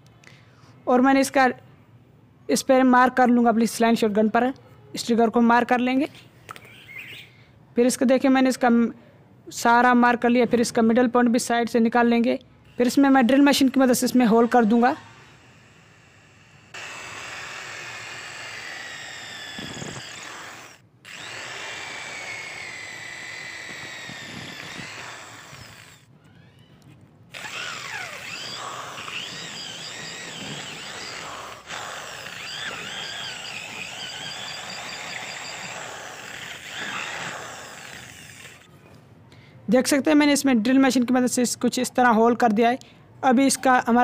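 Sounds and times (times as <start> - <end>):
electric drill boring into wood: 12.7 - 26.7, 27.3 - 38.7.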